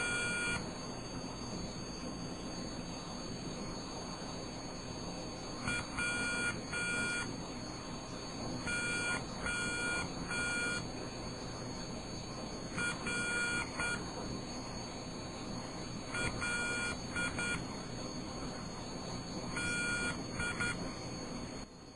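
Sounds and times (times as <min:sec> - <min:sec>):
buzzer beeping morse code: 0:00.0 - 0:00.6, 0:05.6 - 0:07.3, 0:08.7 - 0:10.9, 0:12.8 - 0:14.1, 0:16.1 - 0:17.6, 0:19.6 - 0:20.9.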